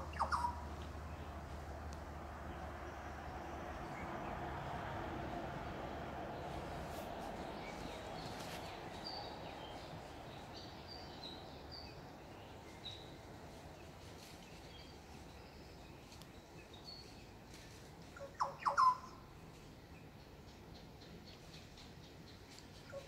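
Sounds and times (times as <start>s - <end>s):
sharp bird calls: 0.0s - 1.4s, 18.2s - 19.2s
small birds chirping: 0.0s - 4.4s, 6.3s - 23.0s.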